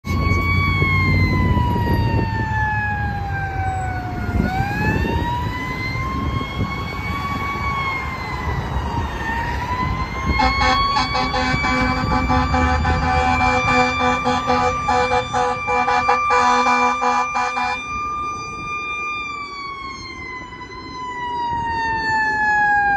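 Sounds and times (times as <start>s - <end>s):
fire engine siren wailing: 0.0s - 22.9s
traffic rumble: 0.0s - 22.9s
pulsing horn blast: 10.4s - 17.8s.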